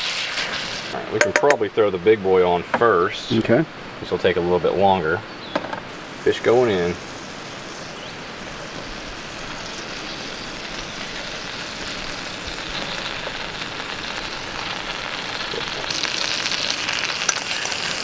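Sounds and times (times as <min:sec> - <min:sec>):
fish sizzling in a pan: 0:00.0 - 0:01.4, 0:05.9 - 0:18.0
crackles and pops: 0:08.4 - 0:18.0.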